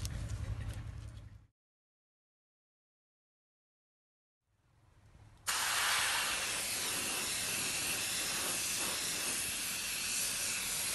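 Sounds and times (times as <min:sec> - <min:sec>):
aerosol spray can hissing: 0:05.5 - 0:10.9.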